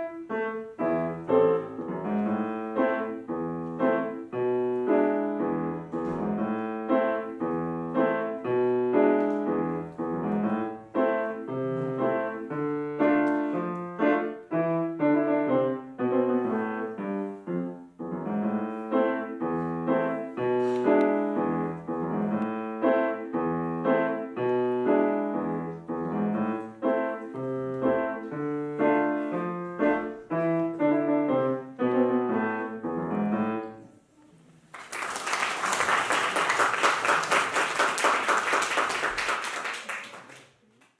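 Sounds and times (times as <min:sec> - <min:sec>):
grand piano playing: 0:00.0 - 0:33.9
audience applauding: 0:34.7 - 0:40.9.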